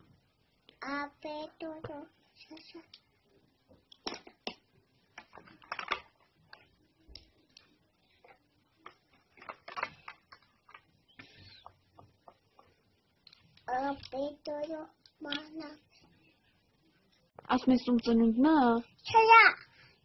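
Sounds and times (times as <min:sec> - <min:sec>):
small objects clicking and tapping: 0:03.7 - 0:15.6.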